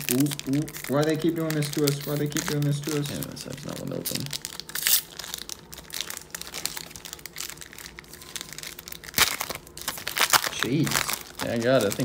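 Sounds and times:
foil pack crinkling: 0.0s - 12.0s
foil pack ripping open: 0.0s - 12.0s.

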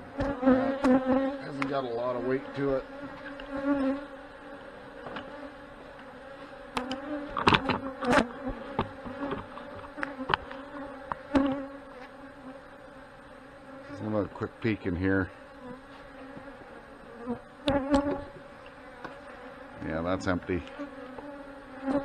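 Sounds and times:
bees buzzing: 0.0s - 22.0s
knocks on wooden hive boxes: 6.8s - 11.6s.

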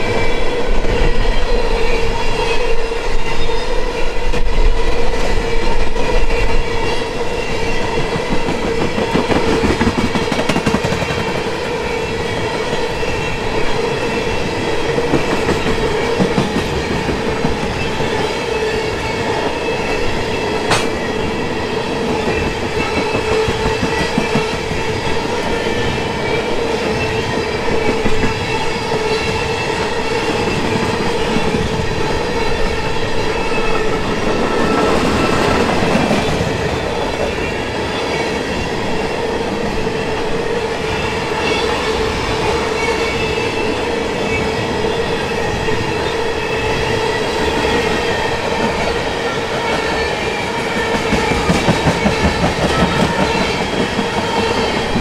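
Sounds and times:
train wheels clicking over rail joints: 7.9s - 11.7s, 20.6s - 21.2s, 49.6s - 55.0s.

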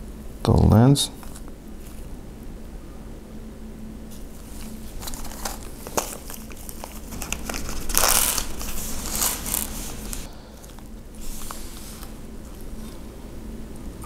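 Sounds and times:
plastic bag crinkling: 4.1s - 12.8s.

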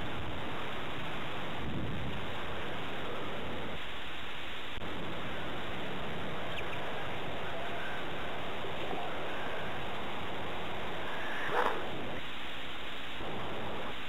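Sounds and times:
steady rushing noise: 0.0s - 14.0s
baby birds peeping: 6.3s - 12.2s.

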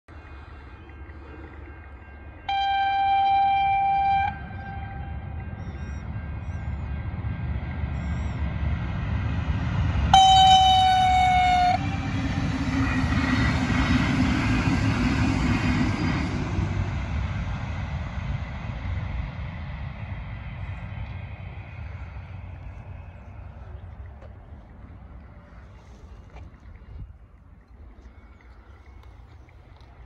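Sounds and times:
train rushing past: 0.1s - 27.3s
train horn blast: 2.4s - 5.8s, 10.0s - 12.7s.

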